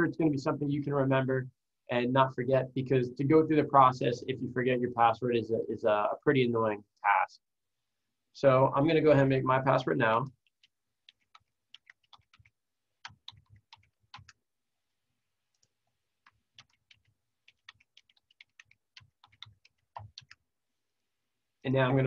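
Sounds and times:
faint keyboard typing: 10.1s - 14.5s, 15.4s - 20.5s.

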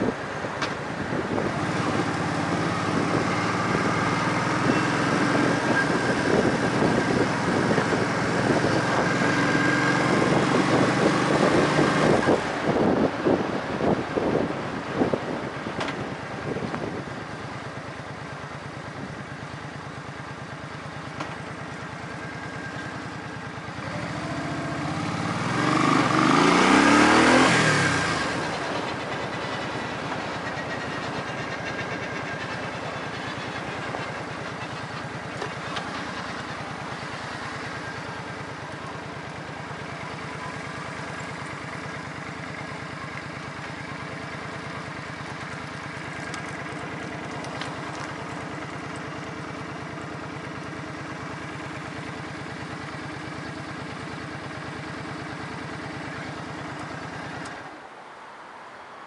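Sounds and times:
engine running steadily: 0.0s - 59.0s
louder engine passing by: 1.2s - 14.0s, 22.0s - 52.1s.

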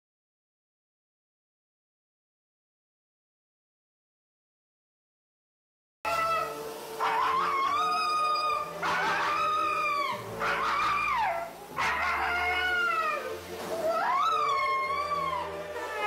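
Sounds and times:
dog howling and whining: 6.1s - 16.0s.

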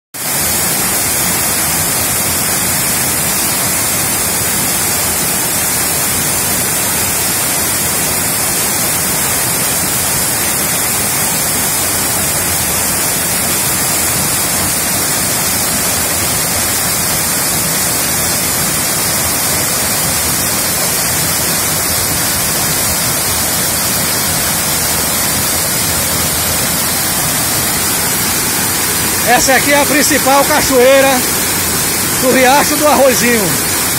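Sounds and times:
waterfall rushing: 0.2s - 33.9s.

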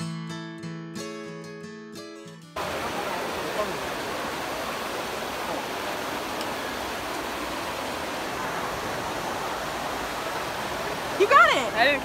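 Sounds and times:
fountain water rushing and splashing: 2.6s - 12.0s.

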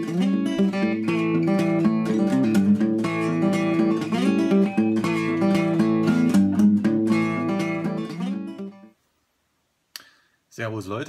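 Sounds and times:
strummed acoustic guitar: 0.0s - 8.9s.

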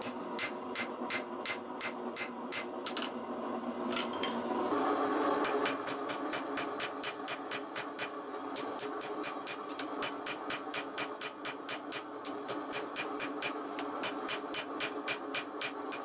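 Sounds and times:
forging hammer on anvil: 5.4s - 16.0s.

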